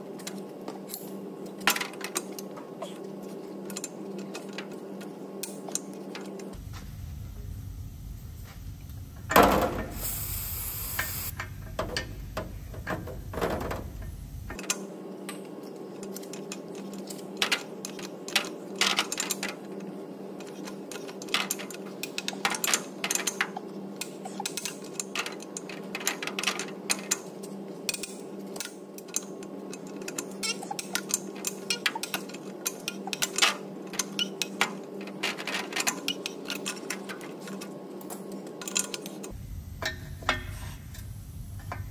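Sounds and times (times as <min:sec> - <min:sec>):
aerosol spray hissing: 0:09.9 - 0:11.3.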